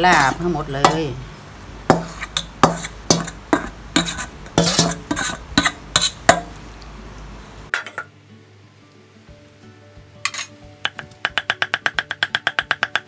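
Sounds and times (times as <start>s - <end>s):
metal spoon scraping steel bowl: 0.0s - 1.0s, 1.9s - 6.5s
faint background music: 0.0s - 1.4s, 3.1s - 13.0s.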